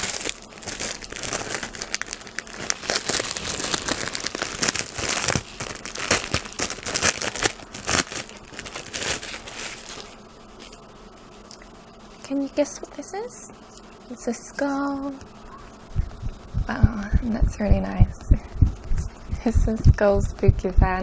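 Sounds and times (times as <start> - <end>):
packaging crinkling and tearing: 0.0 - 10.8.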